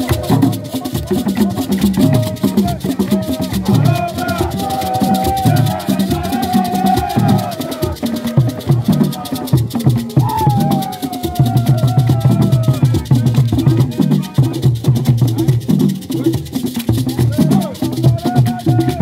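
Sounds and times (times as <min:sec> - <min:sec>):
hands clapping: 0:00.0 - 0:05.8
person singing: 0:00.0 - 0:14.6
hand drums beating: 0:00.0 - 0:19.0
rattles shaking: 0:00.0 - 0:19.0.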